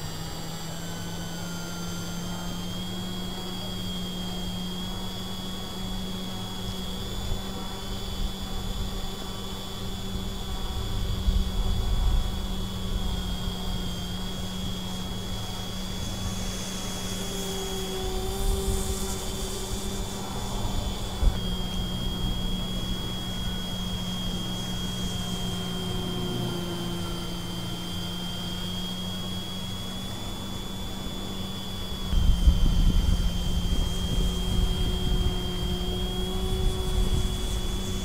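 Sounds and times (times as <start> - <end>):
model airplane motor droning: 0.0 - 38.0
wind rumble on microphone: 6.9 - 16.6, 31.4 - 38.0.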